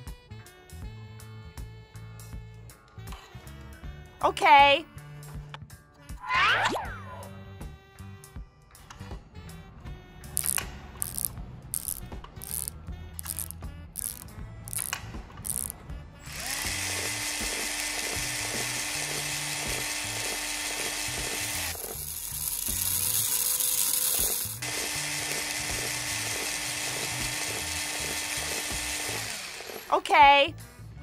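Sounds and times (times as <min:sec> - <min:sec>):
background music: 0:00.0 - 0:31.0
blender motor running: 0:10.4 - 0:30.0.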